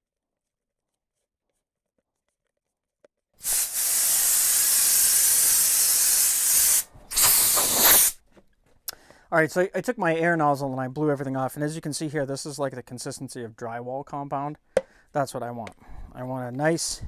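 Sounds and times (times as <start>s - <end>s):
compressed air nozzle hissing: 3.4s - 8.2s.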